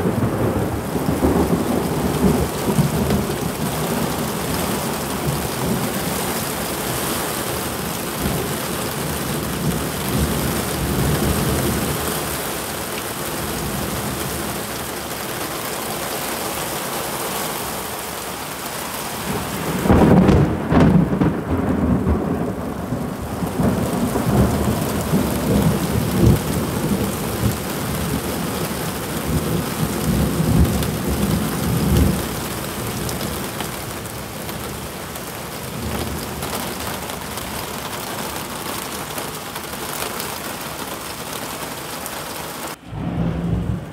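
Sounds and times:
heavy rain pouring: 0.0s - 43.9s.

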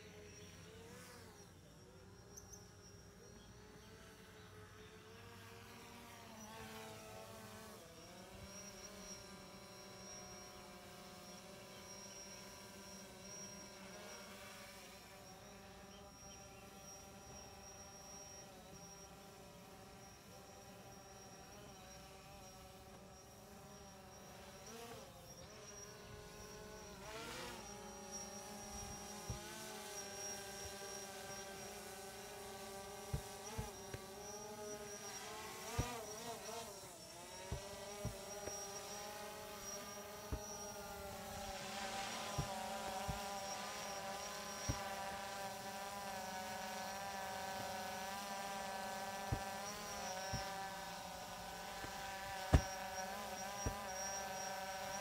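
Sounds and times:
small motors whining: 0.0s - 55.0s
balls thudding on turf: 33.1s - 33.8s, 52.4s - 52.8s.

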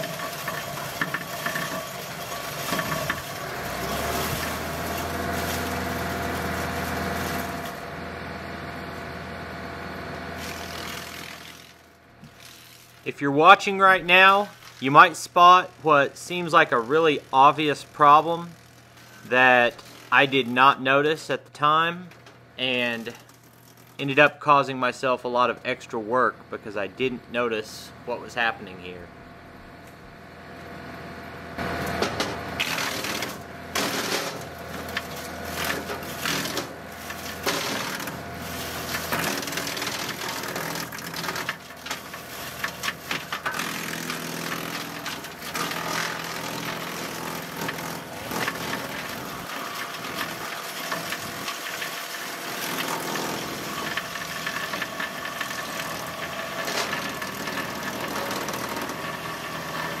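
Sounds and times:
wood cracking and knocking: 0.0s - 7.8s, 31.8s - 59.6s
tractor engine and chipper drone: 0.0s - 60.0s.

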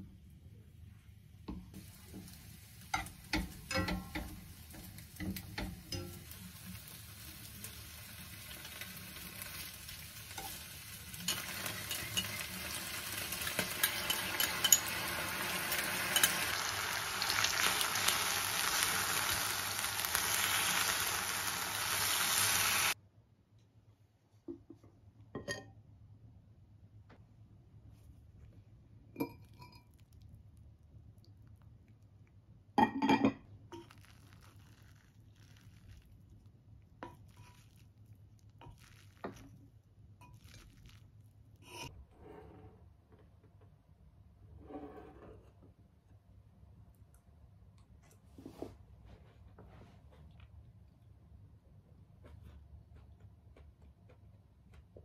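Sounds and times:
stirring clatter: 1.8s - 6.8s, 10.3s - 16.6s
meat and onions sizzling in pan: 1.8s - 23.0s.

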